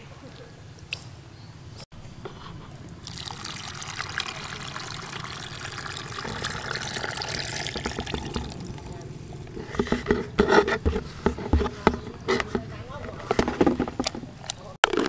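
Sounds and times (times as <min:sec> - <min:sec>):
liquid pouring and splashing: 0:02.2 - 0:11.6.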